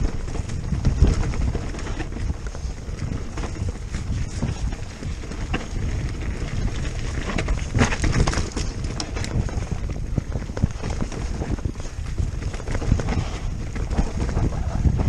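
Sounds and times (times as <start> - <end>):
bike knocking over bumps: 0.0 - 15.0
bike rumbling and rattling: 0.0 - 15.0
wind buffeting microphone: 0.0 - 15.0.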